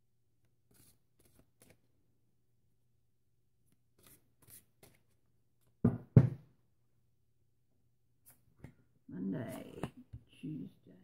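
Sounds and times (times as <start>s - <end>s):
cards sliding and rustling: 0.6s - 1.9s, 3.9s - 5.2s.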